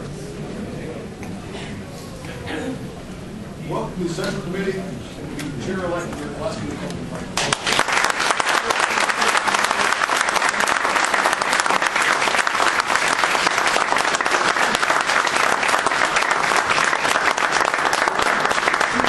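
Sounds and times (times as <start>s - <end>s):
crowd applauding: 7.4s - 19.0s.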